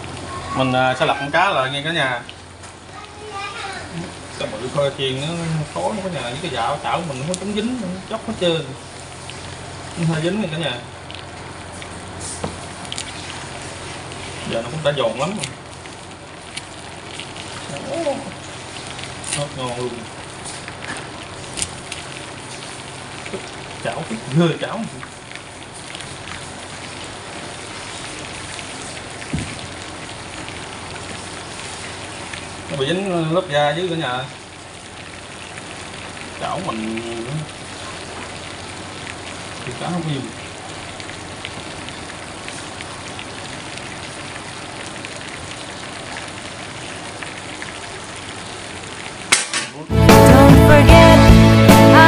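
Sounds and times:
fish sizzling in hot oil: 0.0s - 50.3s
dull knock: 29.3s - 29.6s.

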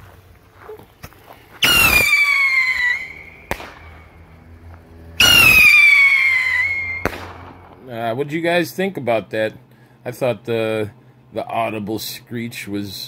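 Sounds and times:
rocket bursting pop: 1.6s - 4.0s, 5.2s - 7.8s
whistling rocket screech: 1.6s - 4.2s, 5.2s - 7.5s.

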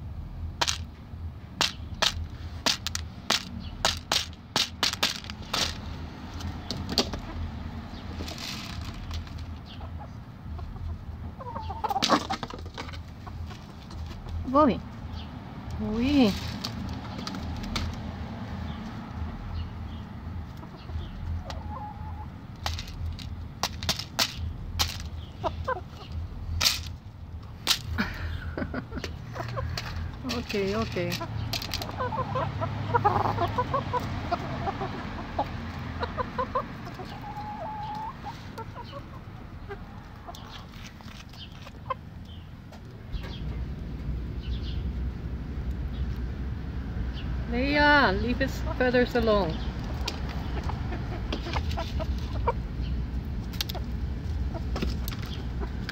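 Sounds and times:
low rumbling noise: 0.0s - 55.9s
chickens clucking: 0.6s - 55.9s.

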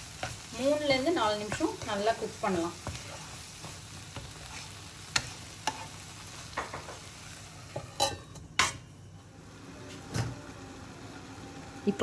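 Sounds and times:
wooden spatula stirring and scraping: 0.0s - 8.4s
food sizzling in a pan: 0.0s - 12.0s.

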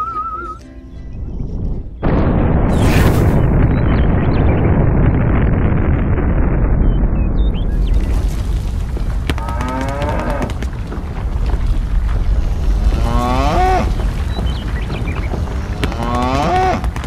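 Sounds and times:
steady low rumble: 1.0s - 17.0s
cow mooing: 9.4s - 10.6s, 12.8s - 13.9s, 15.8s - 16.8s.

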